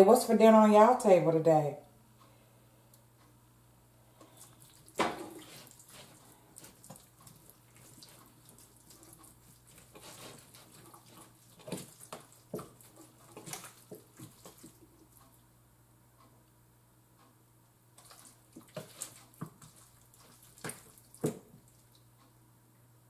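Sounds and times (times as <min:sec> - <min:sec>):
faint steady hum: 0:00.0 - 0:23.0
wet squelches and slaps: 0:04.3 - 0:15.1, 0:18.0 - 0:22.1.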